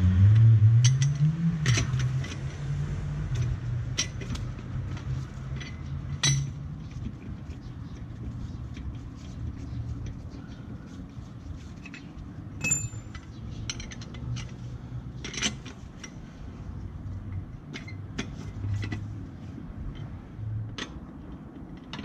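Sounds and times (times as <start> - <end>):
wrench and bolts clinking: 3.3 - 8.2, 11.8 - 14.6.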